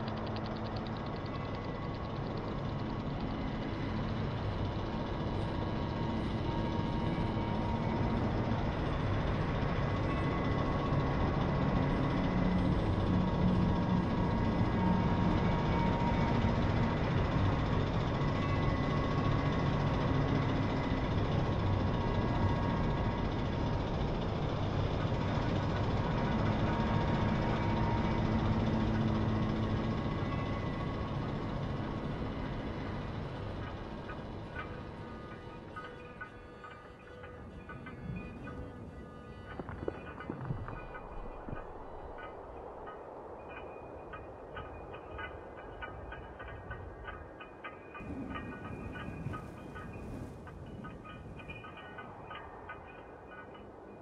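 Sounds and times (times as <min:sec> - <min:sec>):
dense drone: 0:00.0 - 0:54.0.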